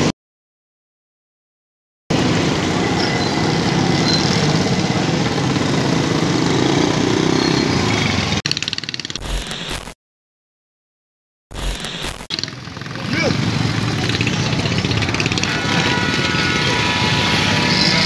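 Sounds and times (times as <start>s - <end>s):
motorcycle engines running: 2.1s - 9.6s, 11.6s - 18.0s
busy street traffic: 2.1s - 10.0s, 11.5s - 18.0s.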